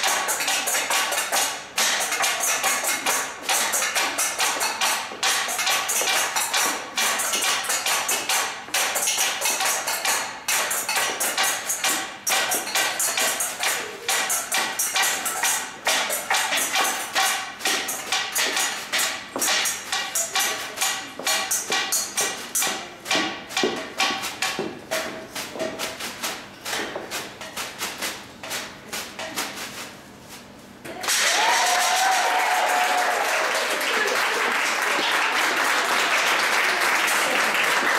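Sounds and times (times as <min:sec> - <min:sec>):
metal bowls struck with sticks: 0:00.0 - 0:26.0
applause: 0:31.0 - 0:37.9.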